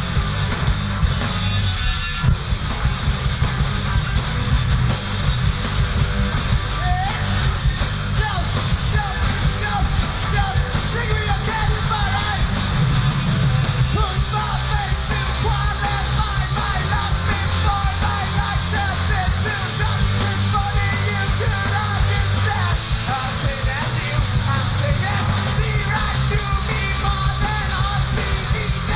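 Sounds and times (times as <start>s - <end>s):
rock band playing: 0.0s - 28.9s
person singing into a microphone: 8.1s - 12.5s, 13.9s - 28.9s.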